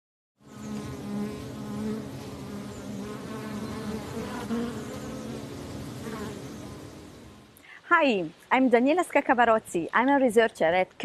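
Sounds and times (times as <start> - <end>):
honeybee buzzing: 0.4 - 7.6.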